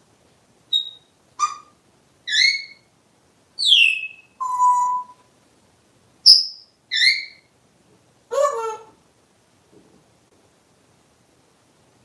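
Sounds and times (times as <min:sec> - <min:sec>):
parrot whistles and chirps: 0:00.7 - 0:01.7, 0:02.3 - 0:02.9, 0:03.6 - 0:05.3, 0:06.3 - 0:07.5.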